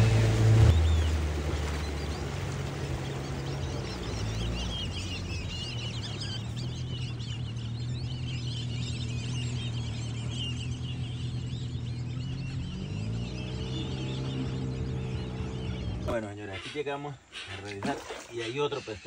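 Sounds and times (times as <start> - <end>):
boat motor humming: 0.0 - 19.0
many birds chirping: 0.6 - 19.0.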